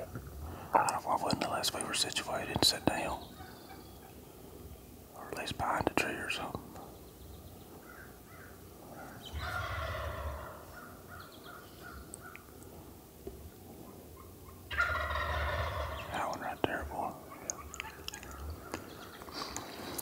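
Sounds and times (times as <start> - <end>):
turkey gobbling: 7.9 - 12.6, 13.8 - 16.2, 17.3 - 19.5.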